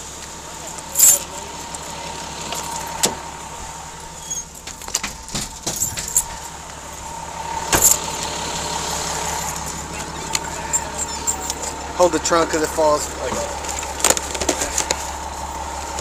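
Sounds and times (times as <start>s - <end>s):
faint steady whine: 0.0s - 16.0s
car keys jangling: 0.6s - 3.2s, 4.2s - 6.6s, 7.7s - 8.1s, 9.3s - 11.8s.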